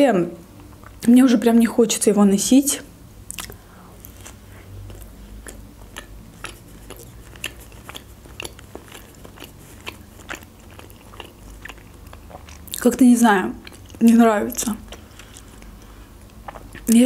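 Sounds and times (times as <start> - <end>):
person chewing food: 3.3 - 12.9, 13.6 - 17.0.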